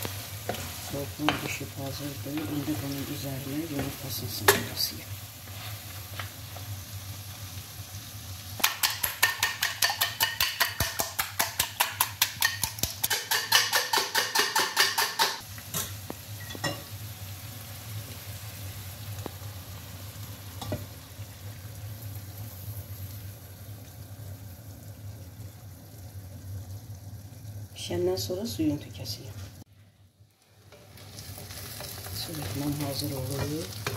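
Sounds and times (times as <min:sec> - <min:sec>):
chicken sizzling in a pan: 0:00.0 - 0:33.9
fork beating eggs in a bowl: 0:08.6 - 0:15.4
utensils knocking: 0:08.6 - 0:15.4.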